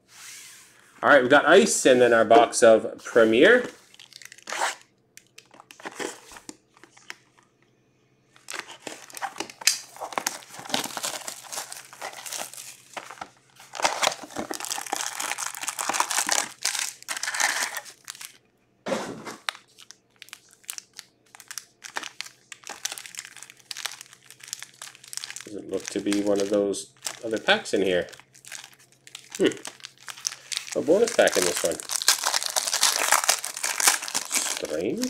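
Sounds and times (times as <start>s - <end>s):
plastic wrap crinkling and tearing: 3.4s - 7.5s, 8.4s - 18.4s, 19.4s - 35.0s
foil packs rustling: 8.4s - 18.4s, 19.1s - 35.0s.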